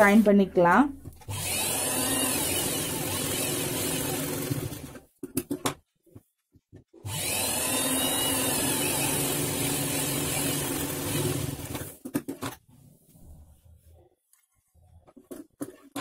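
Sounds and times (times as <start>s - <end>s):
sewing machine stitching: 1.3s - 5.0s, 7.0s - 12.4s.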